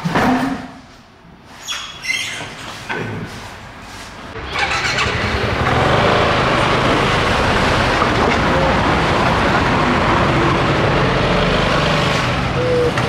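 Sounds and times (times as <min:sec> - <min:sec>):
scooter engine starting and idling: 0:04.4 - 0:13.0.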